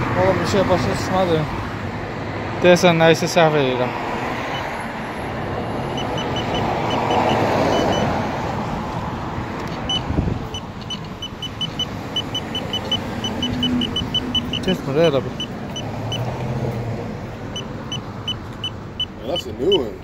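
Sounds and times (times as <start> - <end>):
car passing: 0.0 - 20.0
street traffic: 0.0 - 20.0
short high electronic beeps: 9.8 - 16.2.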